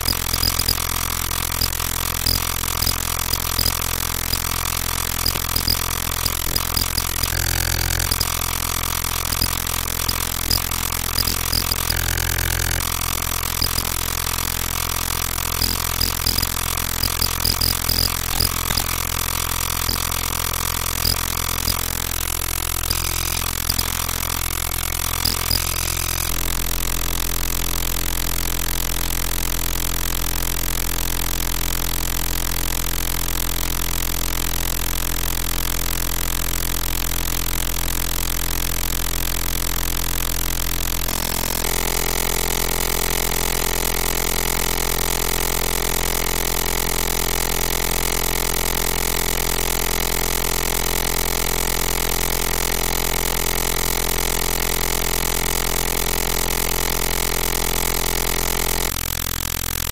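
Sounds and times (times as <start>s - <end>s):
electronic drone with held tones: 0.0s - 26.4s, 41.1s - 58.9s.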